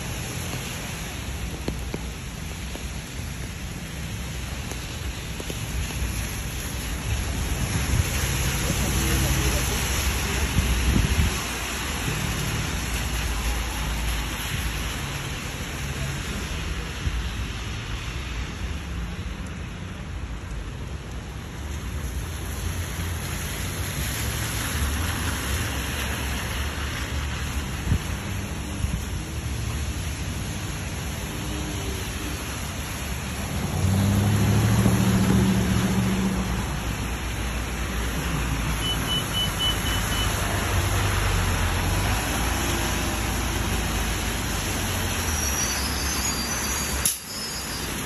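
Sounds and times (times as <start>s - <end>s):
low traffic rumble: 0.0s - 48.0s
rain hissing: 0.0s - 48.0s
tyres on wet pavement: 0.0s - 48.0s.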